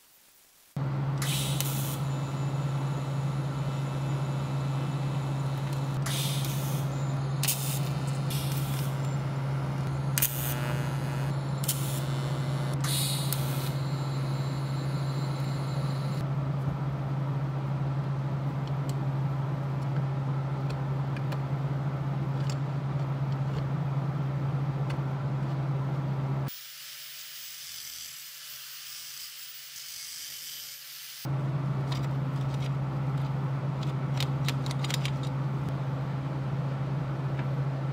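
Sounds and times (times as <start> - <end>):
welder arc crackling: 0.0 - 16.2
welder low hum: 0.0 - 16.3.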